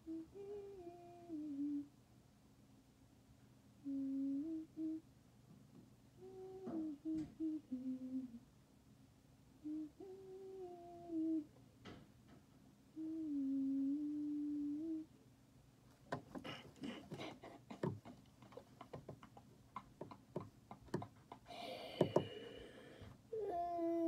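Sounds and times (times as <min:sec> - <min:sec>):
girl humming: 0:00.0 - 0:01.9, 0:03.8 - 0:05.0, 0:06.2 - 0:08.4, 0:09.6 - 0:11.6, 0:13.0 - 0:15.1, 0:16.3 - 0:19.3, 0:20.9 - 0:24.0
irregular clicks and scratches: 0:15.9 - 0:22.3.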